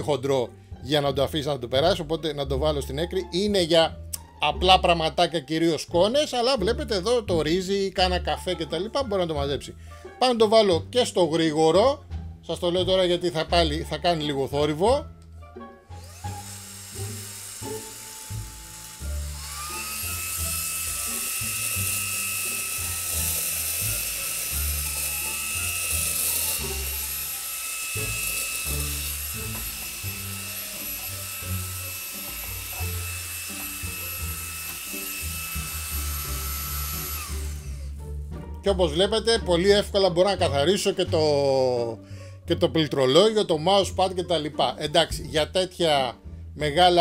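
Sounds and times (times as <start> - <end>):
handheld vacuum whining: 15.9 - 38.1.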